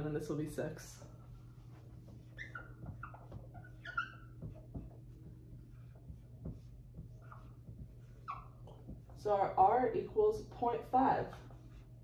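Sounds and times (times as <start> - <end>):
marker scratching on whiteboard: 1.2 - 12.0
marker squeaks: 1.7 - 9.2.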